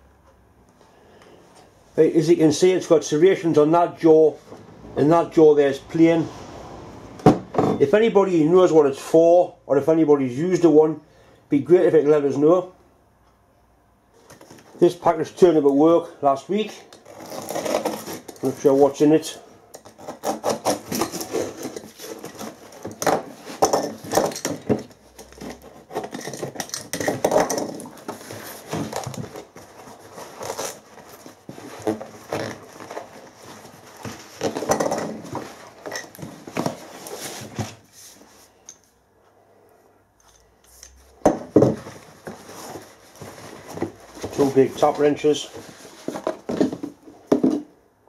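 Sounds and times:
paper tearing and crinkling: 17.0s - 18.9s, 27.1s - 35.8s
metal tools clinking on wood: 35.8s - 36.3s.

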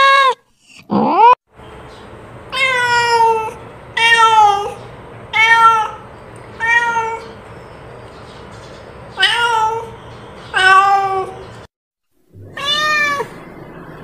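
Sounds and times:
cat meowing: 2.5s - 7.4s, 9.2s - 11.4s, 12.4s - 13.5s.

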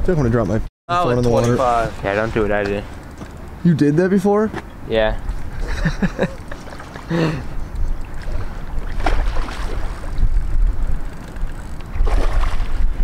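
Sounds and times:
wind buffeting microphone: 5.0s - 13.0s.

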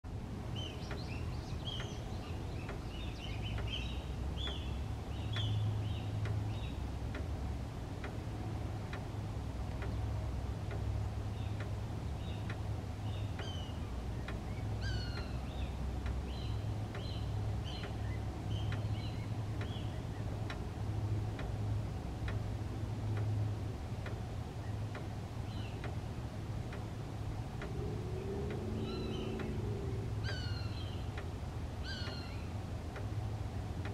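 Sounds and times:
low hum: 1.4s - 33.9s
hawks calling: 28.5s - 31.0s, 31.8s - 32.5s.

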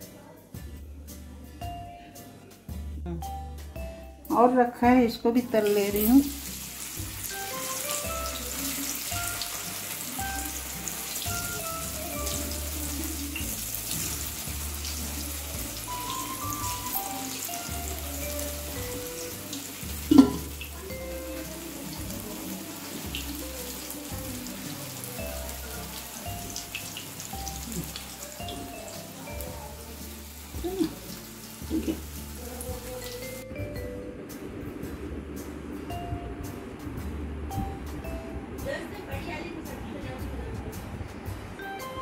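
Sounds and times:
soft background music: 0.0s - 42.0s
food deep-frying in oil: 5.6s - 33.9s.

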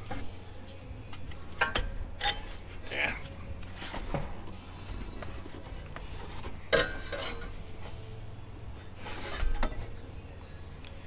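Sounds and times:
metal tools clinking and scraping: 1.5s - 2.7s, 6.2s - 8.0s.

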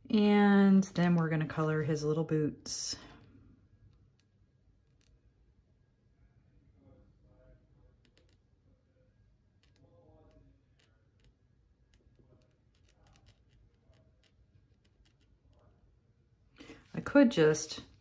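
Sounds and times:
paint pen clicks and ticks: 3.9s - 5.2s, 8.0s - 8.5s, 9.6s - 15.7s.

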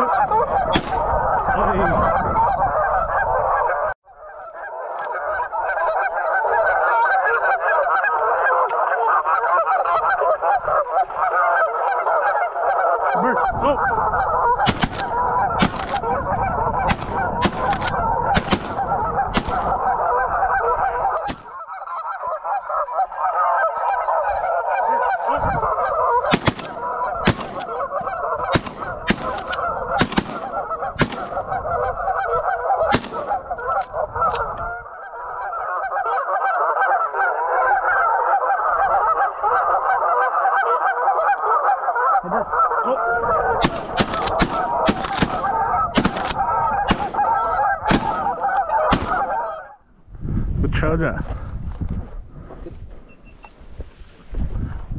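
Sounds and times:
wind rumble on microphone: 0.0s - 4.0s, 13.4s - 21.4s, 25.2s - 35.5s, 42.4s - 54.9s
geese honking: 0.0s - 49.9s
sharp clicks: 14.7s - 16.0s, 43.6s - 47.2s.

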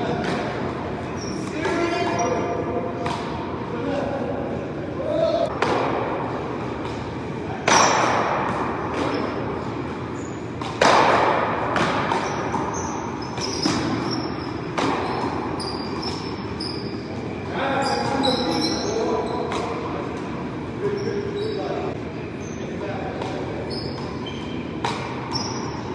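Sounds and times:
ball smacking off paddles and wall: 10.5s - 16.4s, 24.8s - 25.5s.

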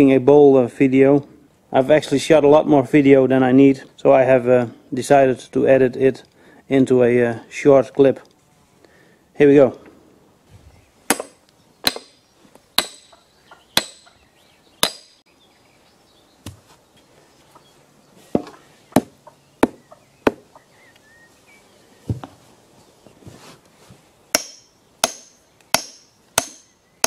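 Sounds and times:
hammer striking axe head: 11.1s - 12.2s, 12.8s - 13.1s, 13.8s - 14.1s, 14.8s - 15.2s, 24.3s - 26.7s.

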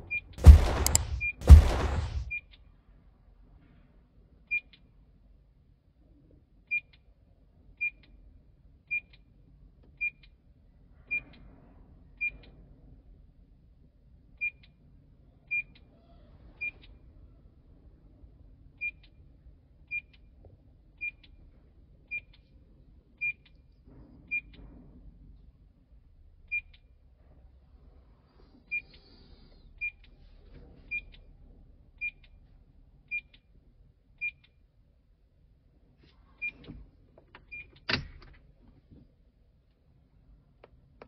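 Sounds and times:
sharp click: 0.0s - 2.4s.

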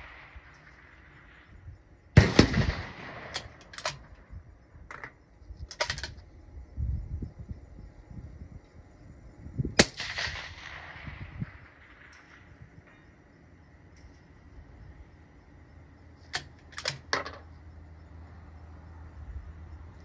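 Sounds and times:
suppressed rifle shots: 0.0s - 4.3s, 9.8s - 13.0s.

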